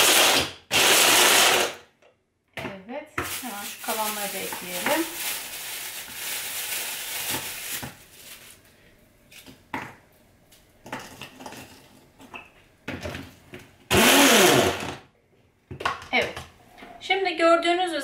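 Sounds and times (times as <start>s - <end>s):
blender chopper motor: 0.0s - 1.8s, 13.9s - 15.0s.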